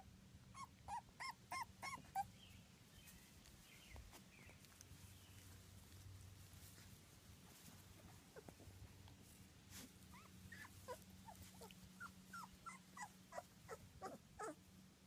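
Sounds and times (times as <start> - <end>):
puppy squeaking: 0.6 - 2.3, 10.1 - 14.6.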